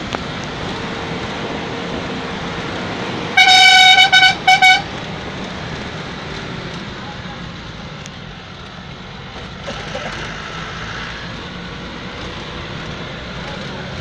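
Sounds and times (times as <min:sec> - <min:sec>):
engine and road noise: 0:00.0 - 0:14.0
vehicle horn honking: 0:03.4 - 0:04.9.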